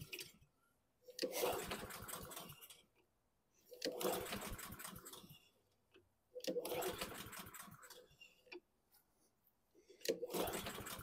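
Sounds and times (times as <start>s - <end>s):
lawn mower recoil starter cranking: 1.2s - 2.8s, 3.8s - 5.4s, 6.4s - 8.0s, 10.1s - 11.0s.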